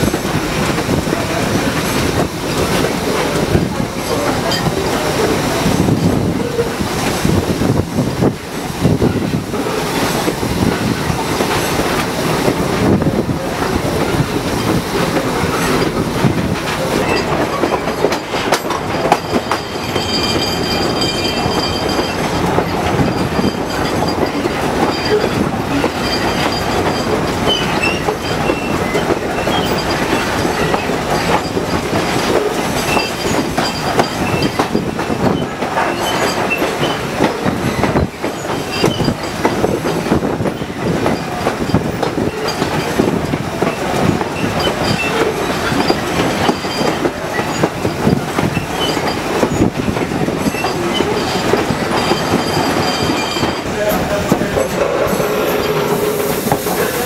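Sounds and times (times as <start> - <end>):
train wheels clattering over rails: 0.0 - 57.0
wind: 0.0 - 57.0
wheel squeal: 19.1 - 39.4, 43.7 - 49.7, 50.4 - 57.0.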